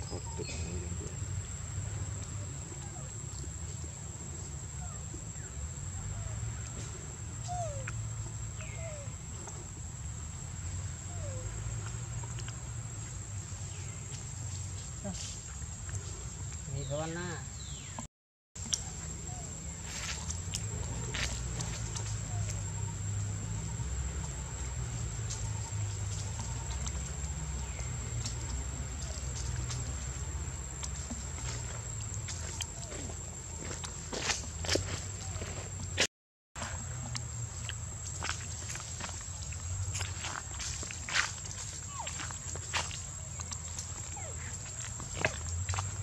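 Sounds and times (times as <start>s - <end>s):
rustles of dry leaves: 18.6s - 36.0s, 36.6s - 46.0s
high insect drone: 36.8s - 46.0s.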